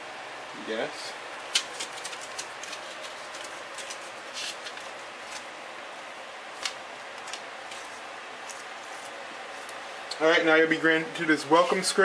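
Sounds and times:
room noise hiss: 0:00.0 - 0:12.0.

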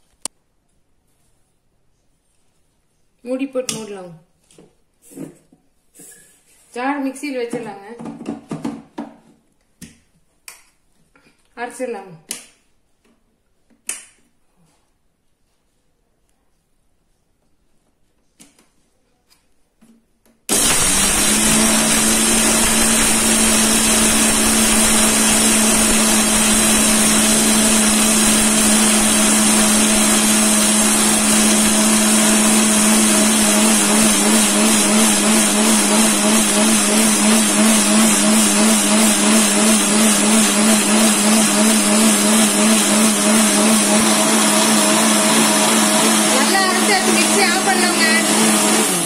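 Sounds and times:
mixer grinder motor whining: 0:20.5 - 0:49.0.

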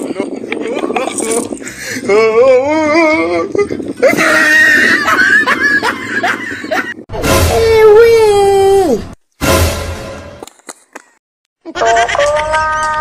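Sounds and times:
music: 0:07.1 - 0:07.8, 0:09.4 - 0:10.4.

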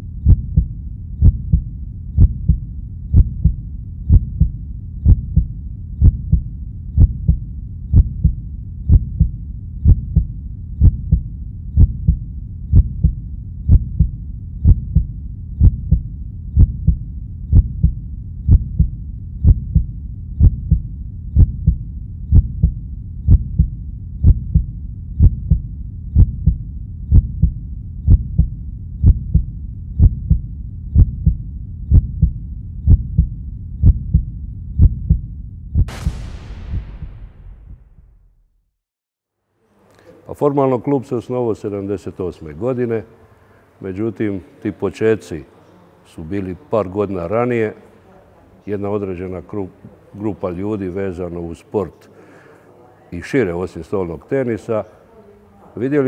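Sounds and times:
low double thumps: 0:00.0 - 0:38.7.

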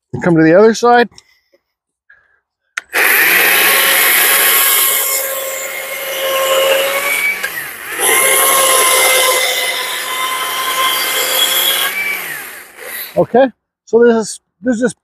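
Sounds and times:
battery chainsaw cutting wood: 0:02.8 - 0:13.4.

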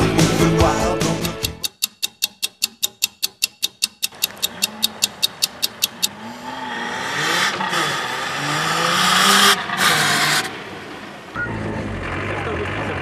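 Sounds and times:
quick even ticking: 0:01.2 - 0:06.2
buggy engine revving: 0:04.2 - 0:13.0.

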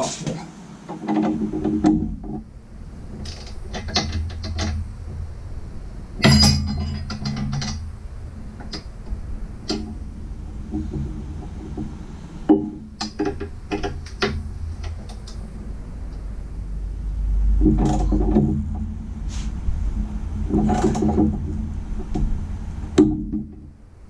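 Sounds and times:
rapid ratcheting: 0:19.8 - 0:23.7.

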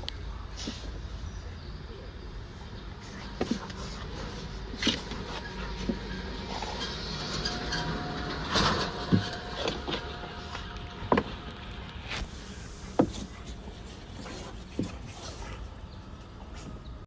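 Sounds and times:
background hum: 0:00.0 - 0:17.0
fur and paws scuffing boards: 0:03.1 - 0:06.0, 0:12.0 - 0:15.7.

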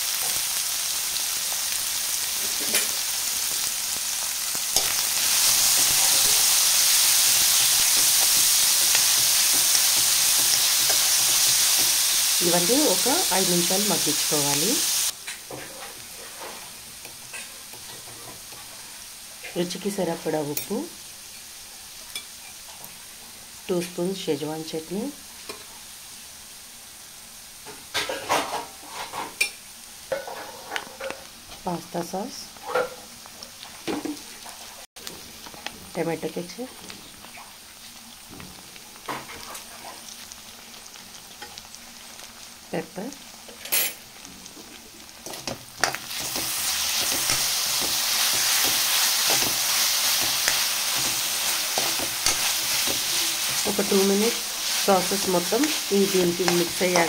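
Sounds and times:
vegetables sizzling in a pan: 0:00.0 - 0:57.0
spatula scraping a pan: 0:15.5 - 0:19.0, 0:44.7 - 0:57.0.

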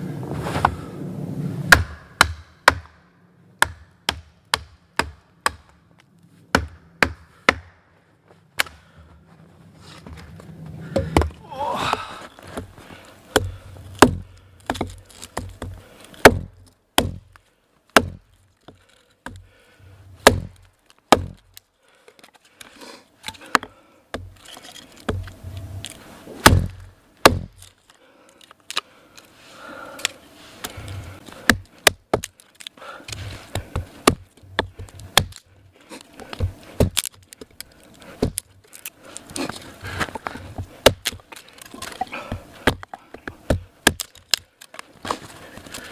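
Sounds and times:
hatchet chopping wood: 0:01.7 - 0:03.0, 0:03.6 - 0:05.8, 0:06.5 - 0:07.8, 0:08.6 - 0:08.8, 0:10.9 - 0:12.0, 0:13.3 - 0:19.5, 0:20.2 - 0:21.6, 0:23.3 - 0:24.4, 0:25.0 - 0:25.3, 0:26.4 - 0:27.7, 0:30.6 - 0:32.4, 0:33.1 - 0:35.4, 0:36.2 - 0:38.8, 0:39.4 - 0:45.2.

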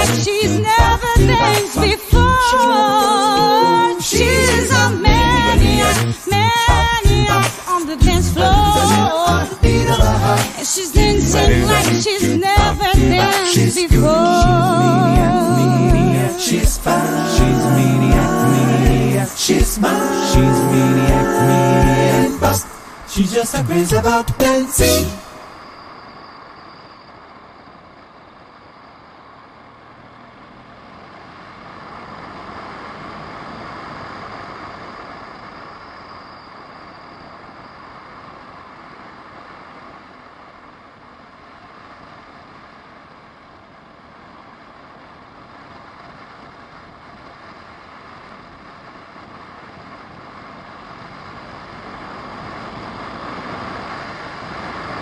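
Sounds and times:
car engine and tyre noise: 0:25.2 - 0:55.0.

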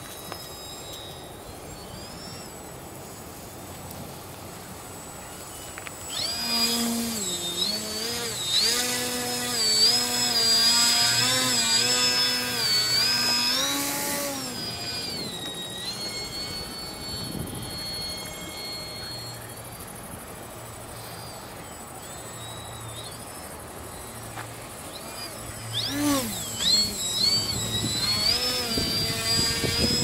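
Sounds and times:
model plane motor and propeller: 0:00.0 - 0:30.0.

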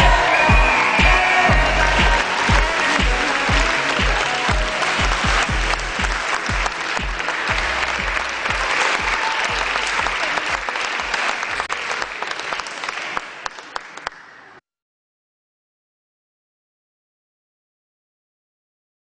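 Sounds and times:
music with low beat: 0:00.0 - 0:08.8
crowd applauding: 0:00.0 - 0:14.6.

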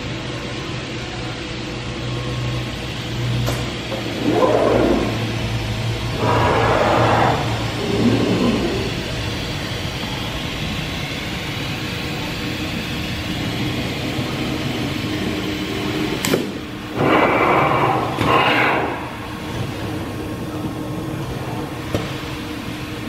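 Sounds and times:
machinery hum: 0:00.0 - 0:23.0
rushing noise bursts: 0:04.1 - 0:20.3.

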